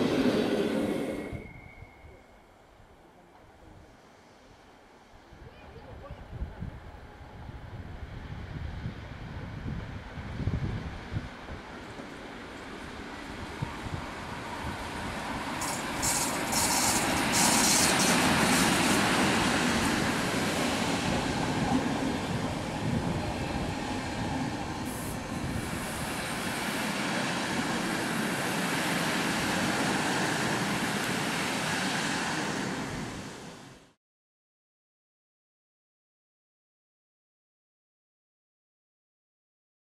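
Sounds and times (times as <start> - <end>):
electric locomotive passing: 0.0 - 5.4, 6.6 - 34.0
train wheels on rails: 9.0 - 33.8.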